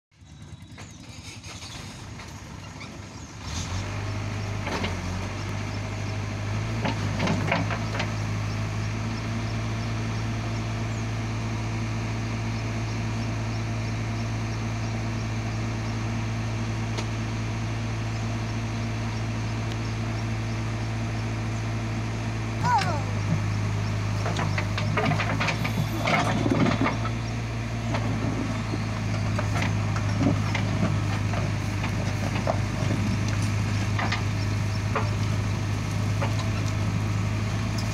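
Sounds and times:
diesel engine running: 0.1s - 37.9s.

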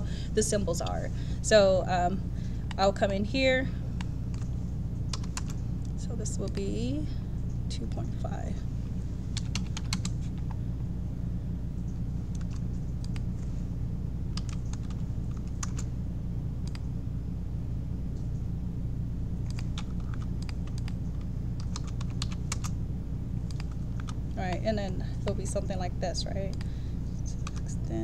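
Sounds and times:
steady low hum: 0.0s - 28.0s
keyboard typing: 5.1s - 5.6s, 9.3s - 10.5s, 12.3s - 13.3s, 14.3s - 15.9s, 19.4s - 22.8s, 23.5s - 24.6s, 27.3s - 27.7s.

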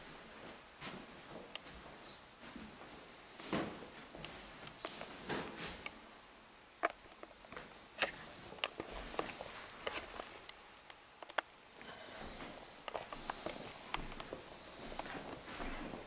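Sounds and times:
soft footsteps on carpet: 0.0s - 5.8s, 11.9s - 16.0s
faint rustling hiss: 0.0s - 16.0s.

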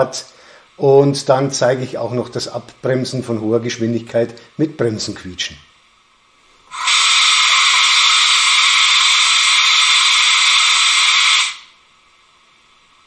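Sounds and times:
train whistle through loudspeaker: 6.7s - 11.7s.

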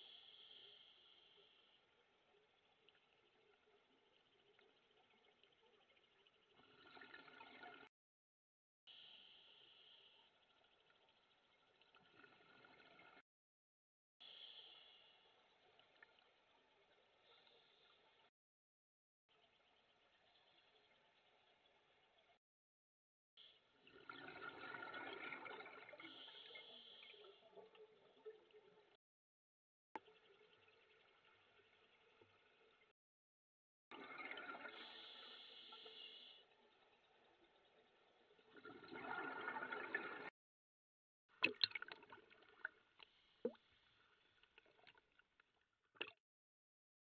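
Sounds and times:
exhaled air bubbling underwater: 23.9s - 29.0s, 33.9s - 40.3s.

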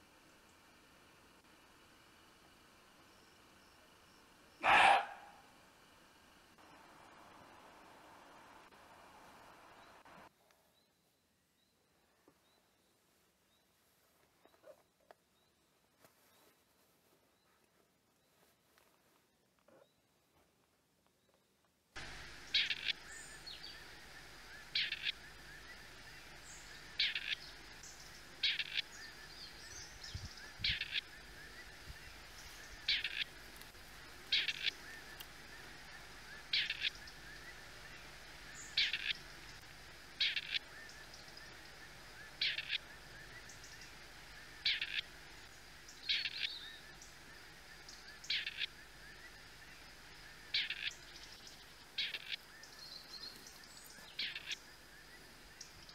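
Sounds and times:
partridge calling: 22.0s - 55.8s.

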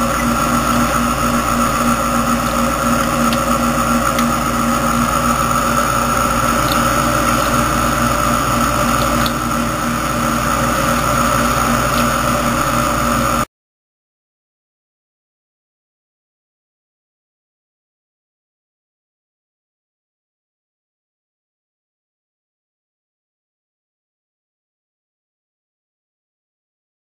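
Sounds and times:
water churning: 0.0s - 13.4s
aquarium filter pump hum: 0.0s - 13.5s.

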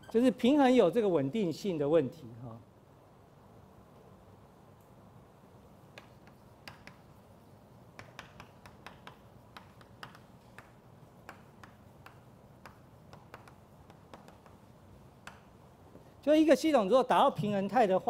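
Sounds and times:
chalk writing on a chalkboard: 5.8s - 15.5s.

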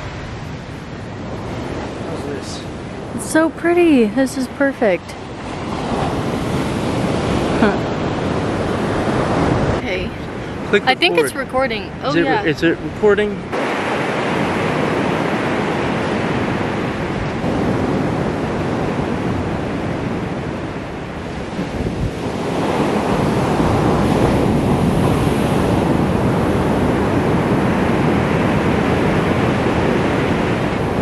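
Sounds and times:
ocean surf breaking: 0.0s - 31.0s.

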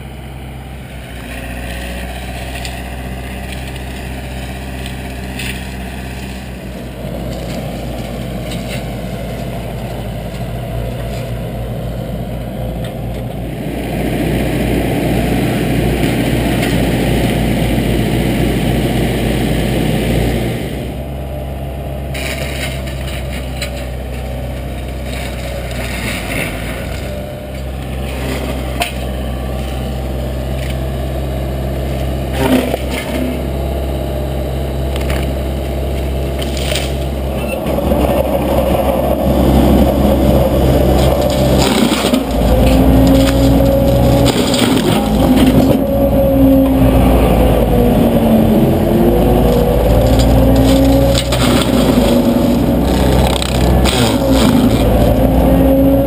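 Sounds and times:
engine running: 0.0s - 56.0s
mulcher grinding brush: 0.8s - 11.8s, 12.4s - 56.0s
wood cracking: 1.2s - 11.7s, 22.0s - 31.1s, 34.7s - 37.3s, 39.4s - 46.7s, 48.8s - 56.0s.

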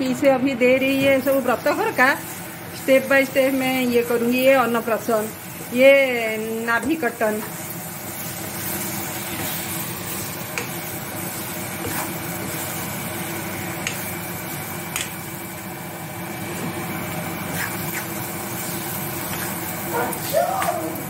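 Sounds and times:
spatula stirring thick sauce: 8.1s - 13.0s, 17.5s - 19.8s.

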